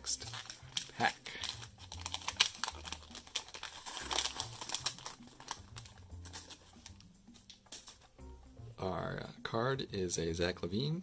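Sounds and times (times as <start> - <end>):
wrapper crinkling and tearing: 0.0 - 7.0.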